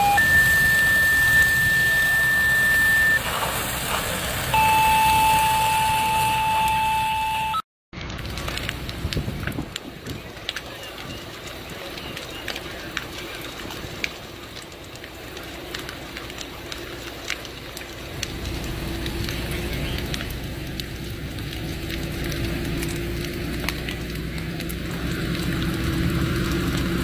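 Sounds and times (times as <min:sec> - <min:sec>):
fire crackling and popping: 0:00.0 - 0:06.8, 0:08.0 - 0:27.0
fire truck engine drone: 0:00.0 - 0:27.0.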